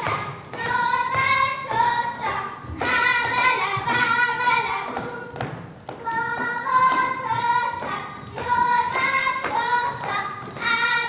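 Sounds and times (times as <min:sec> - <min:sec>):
children singing folk tune: 0:00.0 - 0:11.0
footsteps thudding on stage: 0:00.0 - 0:11.0.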